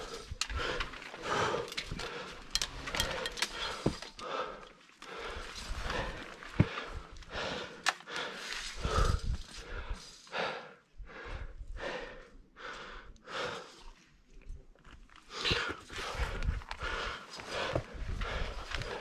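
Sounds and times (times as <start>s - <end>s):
person breathing hard: 0.0s - 14.0s, 15.3s - 19.0s
steel chain clinking: 1.6s - 4.2s.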